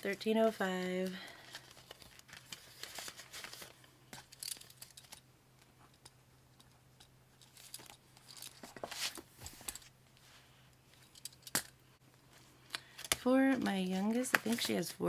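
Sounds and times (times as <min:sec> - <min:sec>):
paper banknotes rustling: 0:00.5 - 0:03.9
plastic binder pockets crinkling: 0:00.8 - 0:05.2
planner pages flipping: 0:01.0 - 0:03.8, 0:07.6 - 0:09.9, 0:12.3 - 0:15.0.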